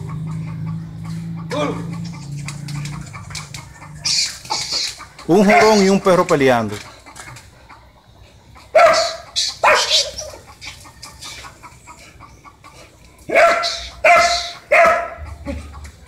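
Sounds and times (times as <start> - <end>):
dog barking: 5.4 - 6.0, 8.7 - 10.4, 13.3 - 15.3.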